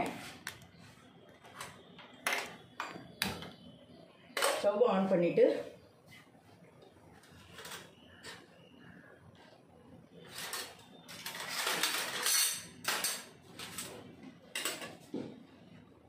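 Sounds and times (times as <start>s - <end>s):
utensils rustling and clattering: 7.2s - 8.6s, 10.2s - 15.1s.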